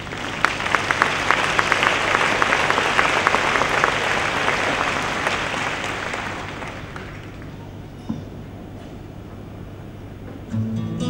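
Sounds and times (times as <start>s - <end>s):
audience applauding: 0.0s - 7.6s.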